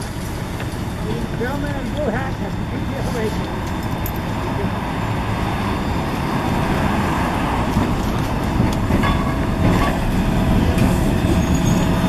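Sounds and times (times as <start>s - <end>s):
light rail vehicle running: 0.0s - 12.0s
wheels clicking over rail joints: 7.6s - 12.0s.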